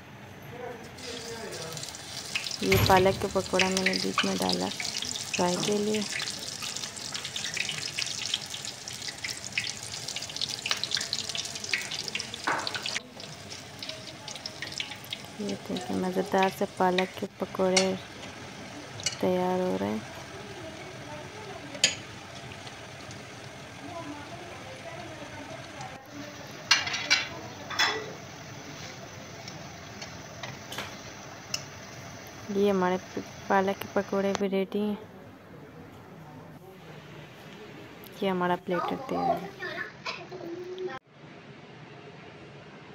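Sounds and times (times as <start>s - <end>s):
deep-frying sizzle and crackles: 0.9s - 34.6s
metal spoon clinking on pan: 19.0s - 19.2s, 21.8s - 22.1s.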